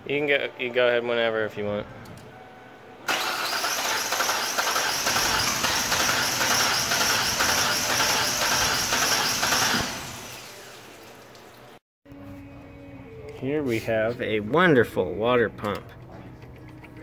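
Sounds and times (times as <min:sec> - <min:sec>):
coolant spraying with hissing rush: 0:03.2 - 0:11.2.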